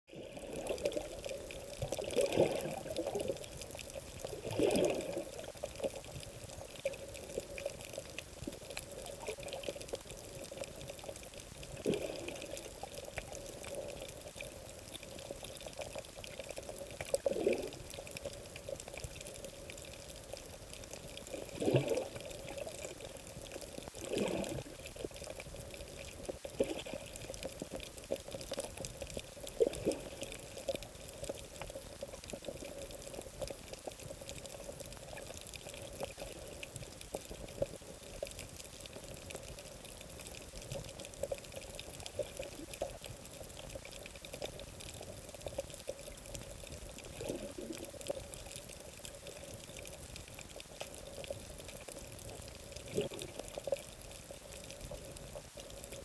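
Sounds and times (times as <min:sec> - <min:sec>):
muffled underwater gurgling: 0:00.1 - 0:31.4, 0:46.9 - 0:48.8, 0:52.2 - 0:54.1.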